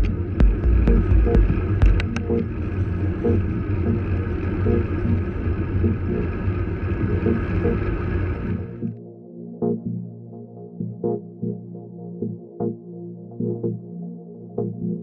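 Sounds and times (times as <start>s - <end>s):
low steady rumble: 0.0s - 9.0s
electronic music with synth: 0.0s - 15.0s.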